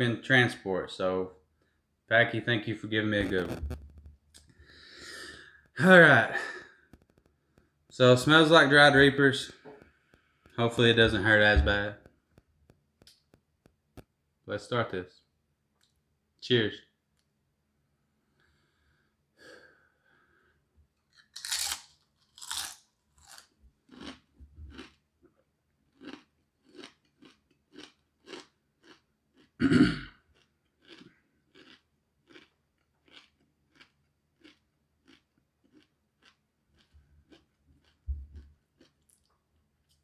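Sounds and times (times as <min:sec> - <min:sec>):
tortilla chip crunching: 0:21.1 - 0:25.0, 0:25.9 - 0:29.6, 0:30.2 - 0:40.0.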